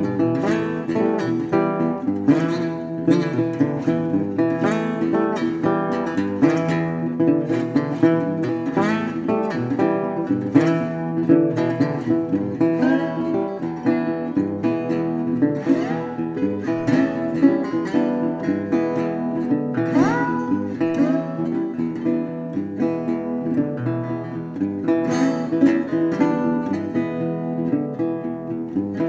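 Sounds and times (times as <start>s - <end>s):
acoustic guitar music: 0.0s - 29.0s.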